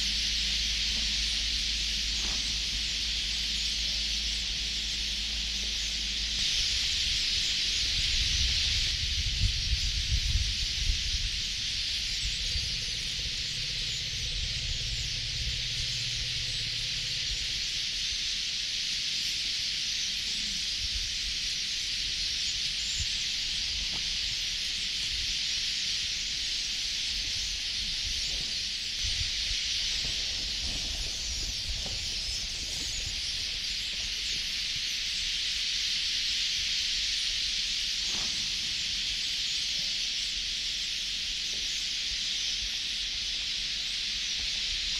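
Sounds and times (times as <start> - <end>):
low steady hum: 0.0 - 18.8
cicadas buzzing: 0.0 - 44.9.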